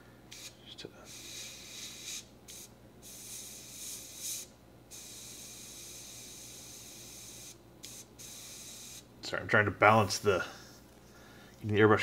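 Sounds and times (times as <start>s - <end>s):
airbrush spraying hiss: 0.3s - 9.1s.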